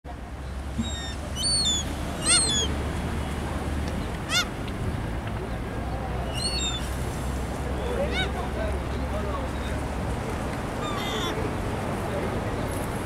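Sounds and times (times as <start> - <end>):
high-pitched bird calls: 0.8 - 2.7, 6.3 - 6.9.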